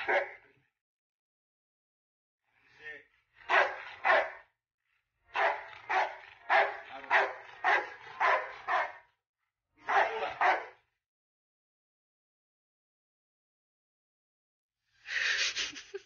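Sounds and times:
dog barking sharply: 0.0s - 0.4s, 3.5s - 4.4s, 5.4s - 9.0s, 9.9s - 10.8s.

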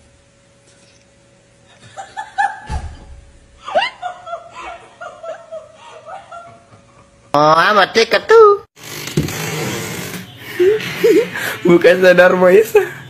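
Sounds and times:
person laughing: 1.7s - 2.9s, 3.6s - 7.1s, 10.4s - 11.7s
low thump: 2.6s - 3.4s.

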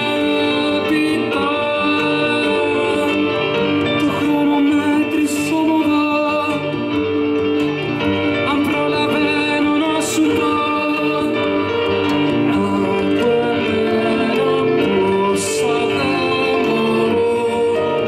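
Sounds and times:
woman singing: 0.0s - 6.7s
acoustic guitar: 0.0s - 18.0s
keyboard: 0.0s - 18.0s.

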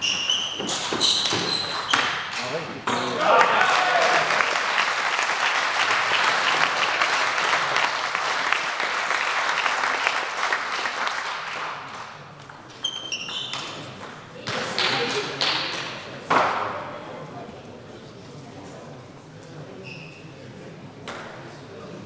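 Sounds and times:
spectators clapping: 3.0s - 12.2s.

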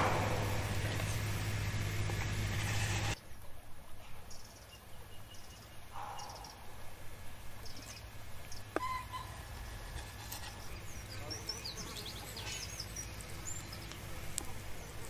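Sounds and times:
low outdoor background: 0.0s - 15.0s
bird chirps: 4.0s - 6.7s, 7.6s - 14.0s.

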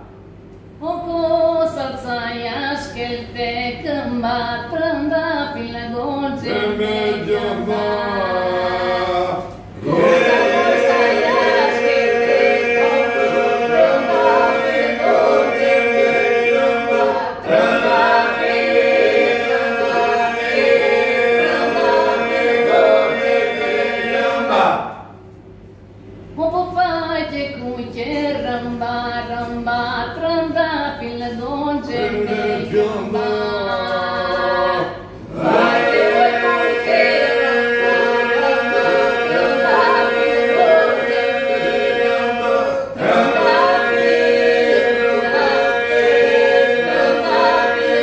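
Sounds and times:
group singing held drone: 6.2s - 25.2s, 31.8s - 48.0s.

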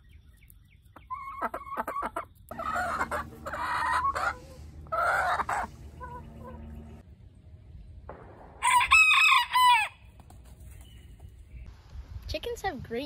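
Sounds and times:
chickens clucking and calling: 0.4s - 7.0s.

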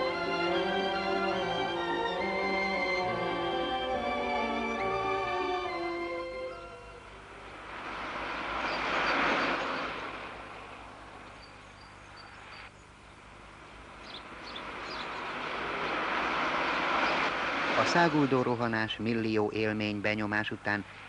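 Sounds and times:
vehicle passing by: 7.2s - 11.2s, 14.2s - 18.9s.

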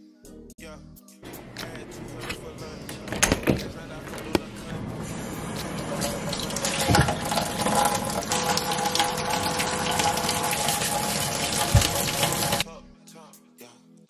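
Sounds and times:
dishes rinsed by hand: 1.6s - 12.6s
faucet running into sink: 4.8s - 12.6s.

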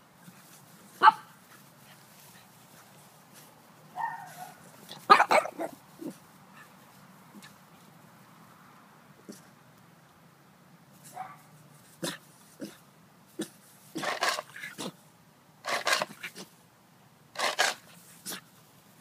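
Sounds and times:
dog barking: 1.0s - 1.3s, 4.0s - 5.8s, 11.1s - 12.2s.

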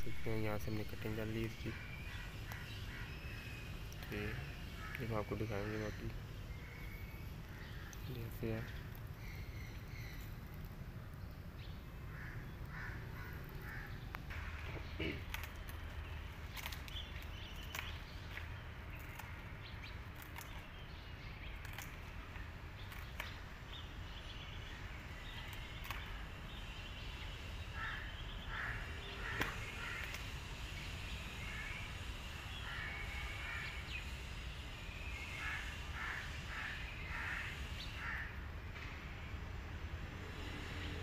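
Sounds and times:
crows cawing: 1.0s - 10.2s, 12.0s - 15.7s, 27.6s - 30.4s, 32.6s - 33.8s, 35.3s - 38.5s
sharp clicks: 15.2s - 20.8s, 21.5s - 23.4s, 25.4s - 26.2s.

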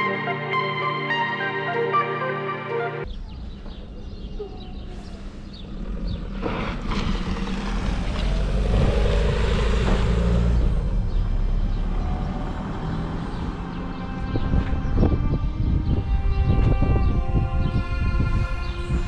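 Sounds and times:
vehicle rumbling past: 3.1s - 16.4s.

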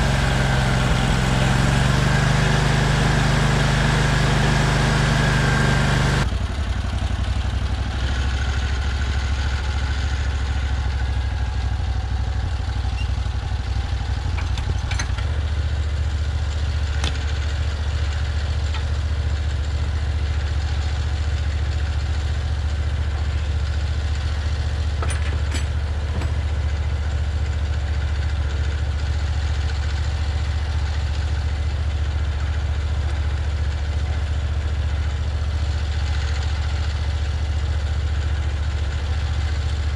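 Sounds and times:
sawmill engine running: 0.0s - 39.9s.

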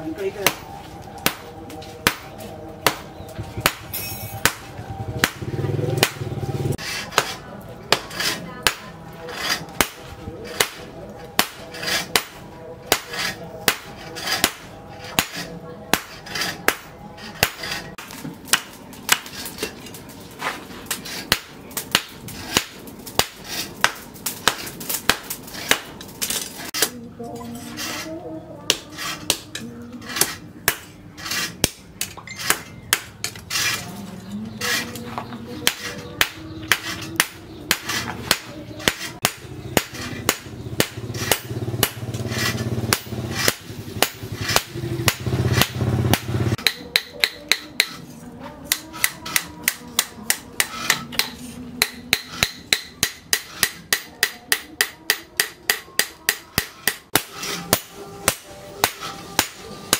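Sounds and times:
hammer striking metal on anvil: 1.2s - 1.4s, 2.0s - 6.2s, 9.5s - 19.7s, 28.7s - 33.4s, 35.6s - 48.0s, 48.7s - 59.9s.

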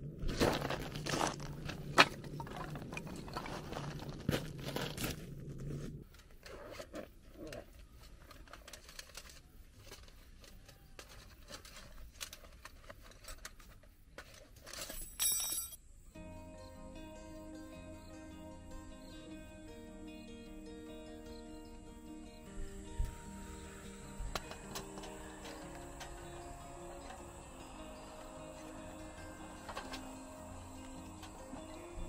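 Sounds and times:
footsteps on pebbles: 0.0s - 6.1s
cloth rustling and crinkling: 0.2s - 15.0s.

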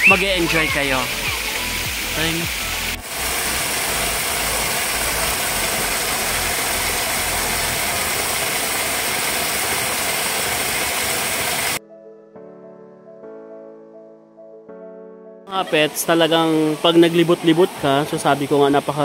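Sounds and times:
soft piano-like music: 0.0s - 7.7s, 11.8s - 19.0s
waterfall rushing: 0.0s - 11.8s, 15.6s - 19.0s.

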